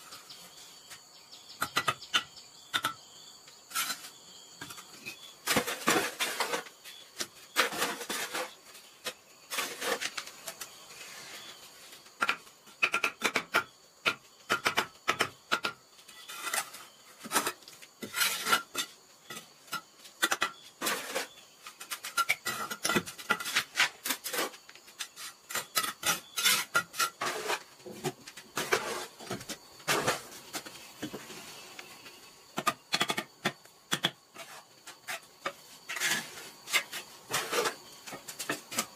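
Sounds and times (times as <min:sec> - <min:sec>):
trowel scraping mortar: 0:03.7 - 0:10.2, 0:16.2 - 0:19.5, 0:20.3 - 0:28.0, 0:28.6 - 0:30.4, 0:34.3 - 0:38.9.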